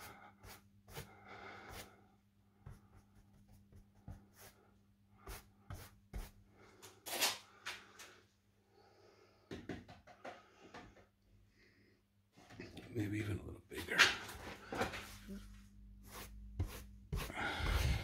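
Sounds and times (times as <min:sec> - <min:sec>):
paintbrush scraping on wall: 0:05.2 - 0:06.4, 0:16.0 - 0:18.0.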